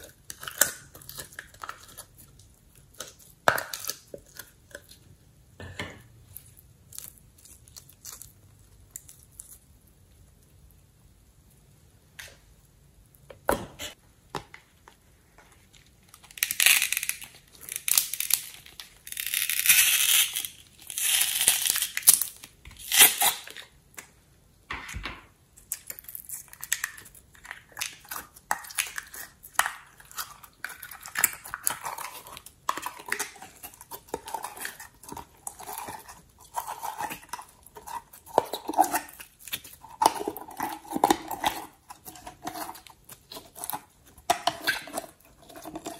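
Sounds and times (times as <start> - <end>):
slime squelching: 6.2 - 10.8, 25.6 - 45.9.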